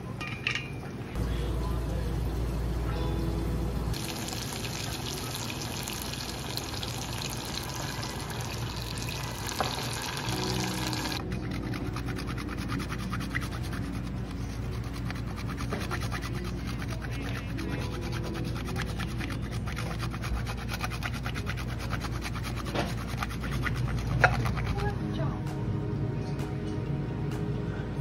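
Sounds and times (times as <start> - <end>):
soft background music: 0.0 - 28.0
sauce sizzling and bubbling: 3.6 - 11.3
grater rasping cheese: 10.6 - 24.9.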